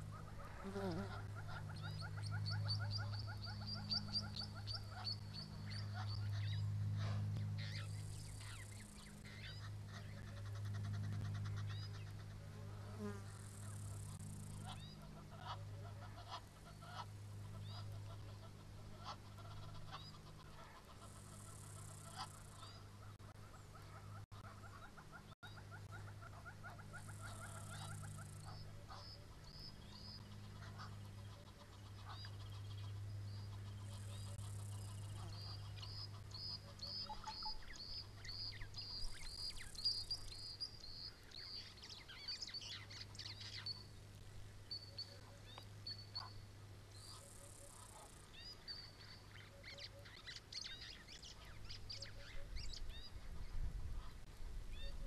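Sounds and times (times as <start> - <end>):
low hum: 0.0 - 49.5
small birds chirping and trilling: 23.5 - 53.7.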